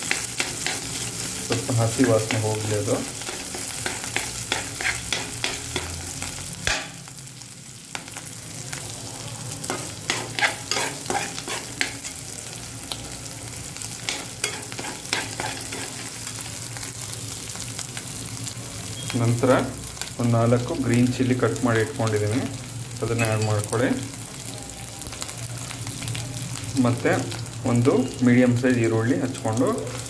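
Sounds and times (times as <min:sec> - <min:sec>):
spoon scraping a pan: 0:00.0 - 0:06.0, 0:09.6 - 0:12.2, 0:14.1 - 0:16.2
paste sizzling in hot oil: 0:00.0 - 0:24.7.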